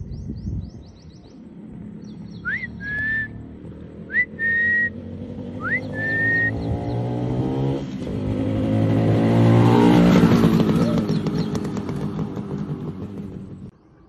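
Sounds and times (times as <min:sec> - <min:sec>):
motorcycle engine running: 0:01.4 - 0:13.8
whistle rising then held: 0:02.5 - 0:03.4, 0:04.1 - 0:05.0.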